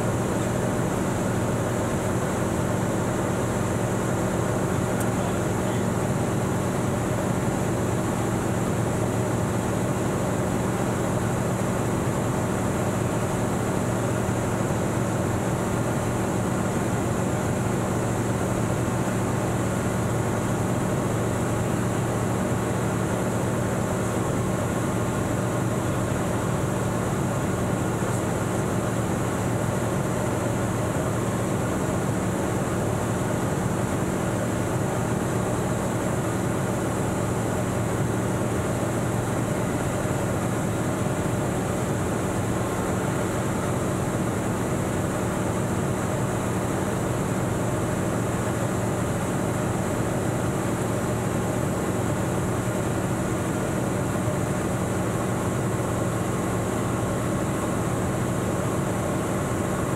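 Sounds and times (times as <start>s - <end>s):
light aircraft engine drone: 0.0s - 59.9s.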